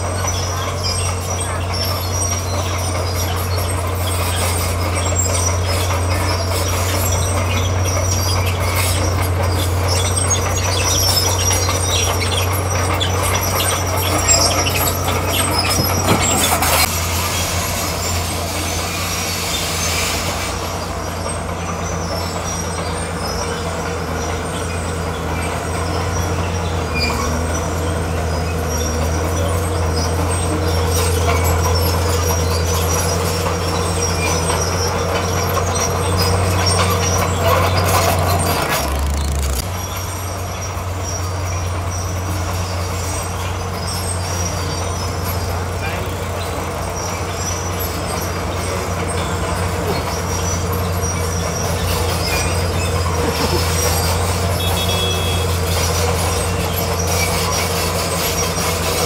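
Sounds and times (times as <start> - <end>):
bulldozer diesel engine: 0.0 - 59.0
steel tracks clanking and squealing: 0.0 - 59.0.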